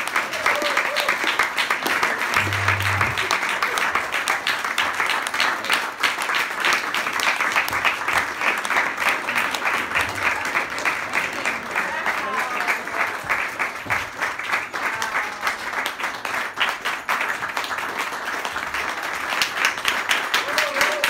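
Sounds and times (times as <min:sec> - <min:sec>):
crowd applauding: 0:00.0 - 0:21.0.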